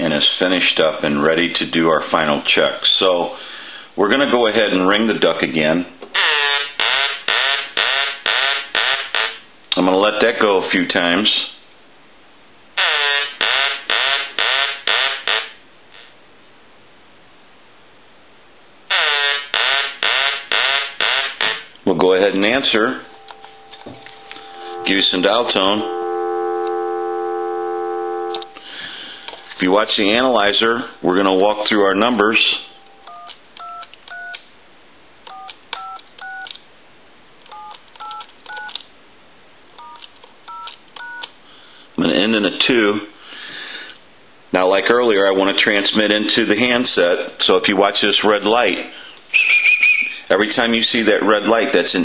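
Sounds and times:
telephone quacking ringer: 6.2 - 9.4, 12.8 - 16.1, 18.9 - 21.7
touch-tone dialing beeps: 32.6 - 34.4, 35.3 - 36.5, 37.5 - 38.8, 39.8 - 41.3.

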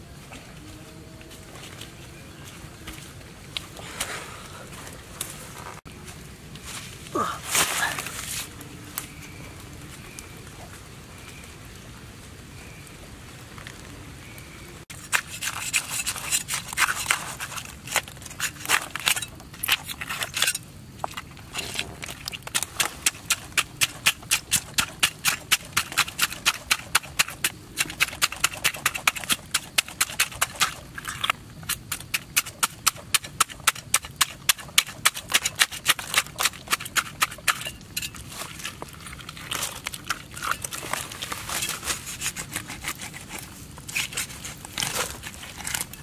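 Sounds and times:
cleaver scraping fish scales: 14.9 - 46.0.

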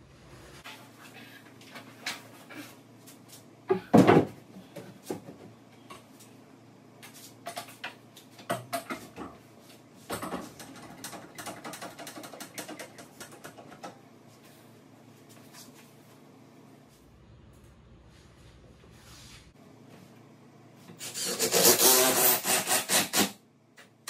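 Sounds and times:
wooden cabinets knocking and clicking: 3.7 - 5.6.

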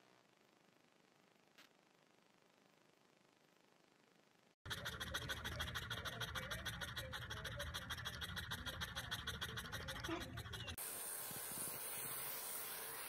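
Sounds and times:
dog panting fast: 4.6 - 13.0.

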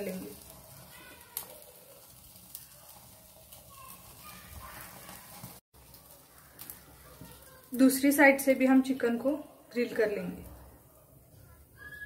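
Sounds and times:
gas burner hiss: 0.0 - 8.4
chicken sizzling on grill: 0.0 - 12.0.

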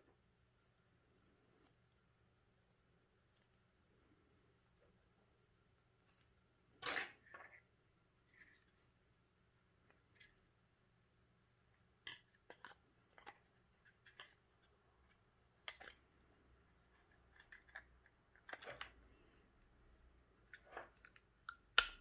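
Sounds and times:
hard plastic clicks and scrapes: 16.9 - 19.1.

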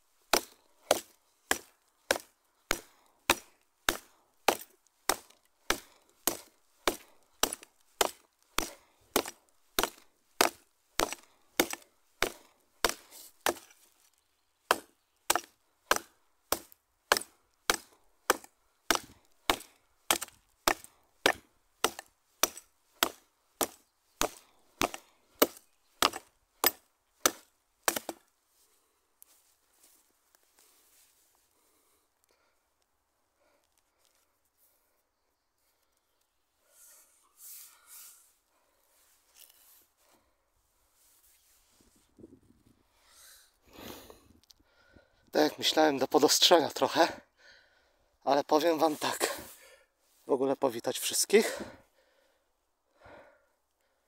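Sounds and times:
tomahawk chopping wood: 0.3 - 13.8, 14.6 - 28.3.

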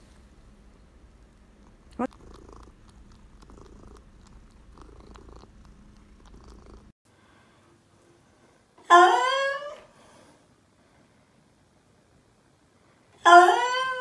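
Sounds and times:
cat purring: 0.9 - 7.0.

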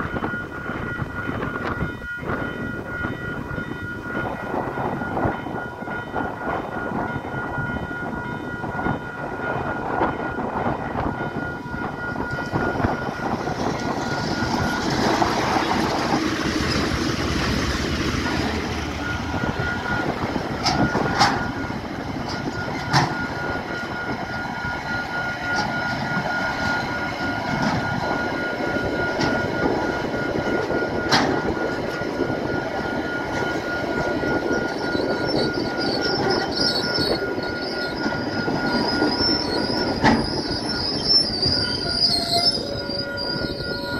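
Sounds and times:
crossing warning bell ringing: 0.0 - 43.9
freight train passing: 0.0 - 43.9
high wheel squeal: 33.1 - 43.9.

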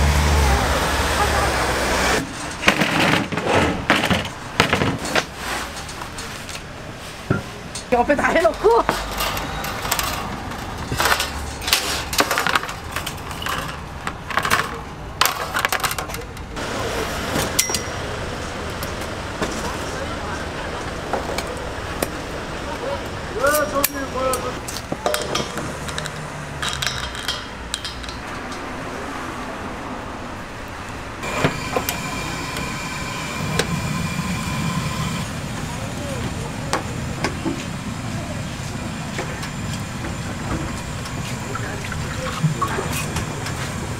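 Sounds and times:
metal scraping and clattering: 2.2 - 16.2
metal clicks and handling: 24.7 - 28.6
gas burner hissing: 31.2 - 43.9.

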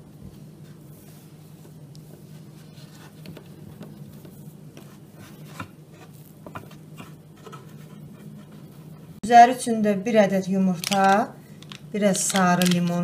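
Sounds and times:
steady low hum: 0.0 - 13.0
hands rubbing dough: 0.2 - 8.9.

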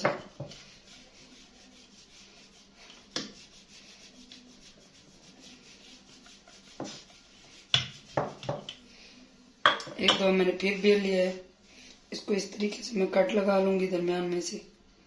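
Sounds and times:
rolling pin rubbing over bread: 0.0 - 8.7.

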